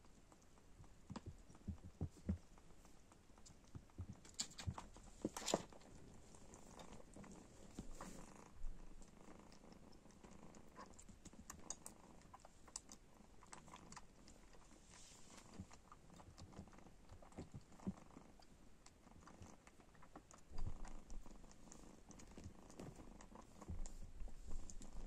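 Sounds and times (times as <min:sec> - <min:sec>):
kitten suckling at bottle: 0:09.3 - 0:25.0.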